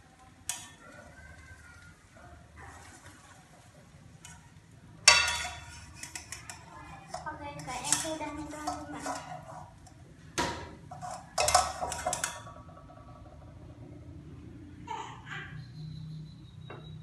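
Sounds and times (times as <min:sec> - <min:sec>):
metal spatula scraping frying pan: 0:04.1 - 0:10.0, 0:10.8 - 0:12.6.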